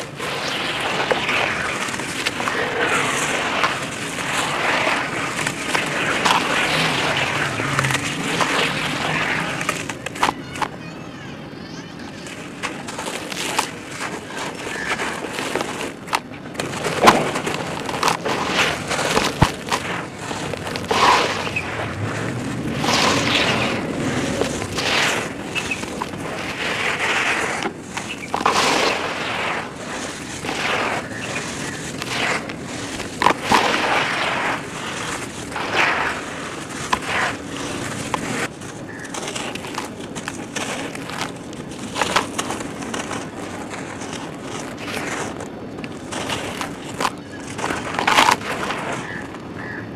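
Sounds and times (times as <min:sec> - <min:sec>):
hands crumbling dirt: 0:12.2 - 0:49.4.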